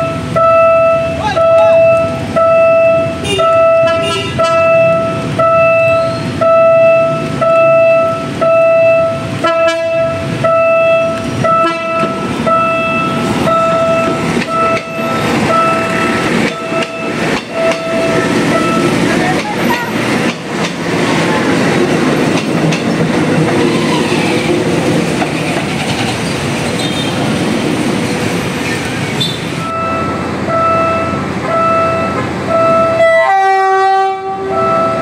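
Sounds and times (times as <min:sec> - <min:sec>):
railway warning alarm beeping: 0:00.0 - 0:21.4, 0:29.1 - 0:35.0
train wheels rumbling and clacking: 0:00.0 - 0:33.1.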